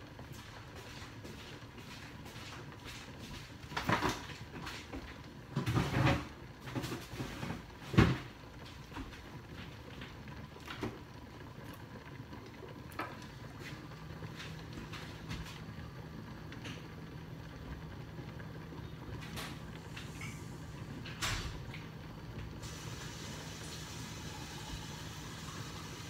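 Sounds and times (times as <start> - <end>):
low background hum: 0.0 - 26.0.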